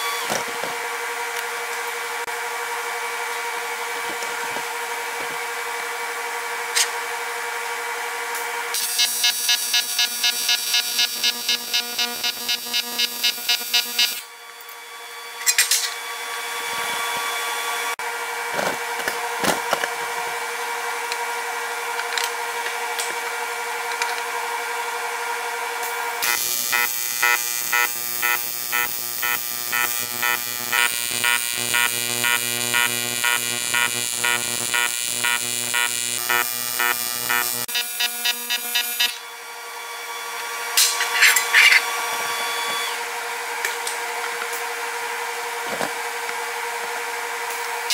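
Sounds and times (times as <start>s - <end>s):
welding arc buzzing: 0.0s - 14.3s, 25.7s - 39.6s.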